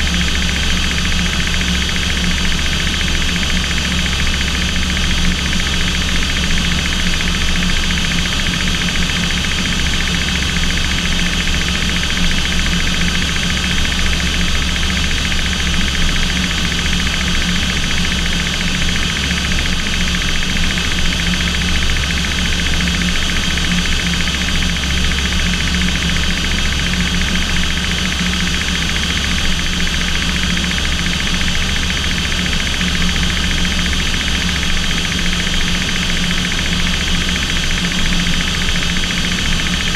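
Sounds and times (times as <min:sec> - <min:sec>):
aircraft engine drone in cockpit: 0:00.0 - 0:39.9.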